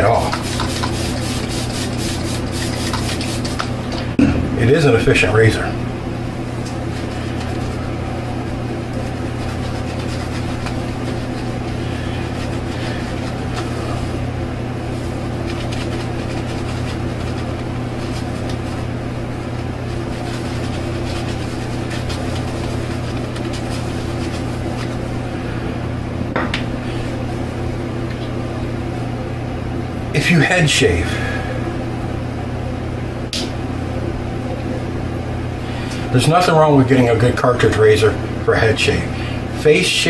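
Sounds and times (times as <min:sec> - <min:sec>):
shaving brush scrubbing: 0:00.0 - 0:03.7, 0:06.9 - 0:14.2, 0:14.9 - 0:18.9, 0:19.7 - 0:25.2
low mechanical hum: 0:00.0 - 0:40.0.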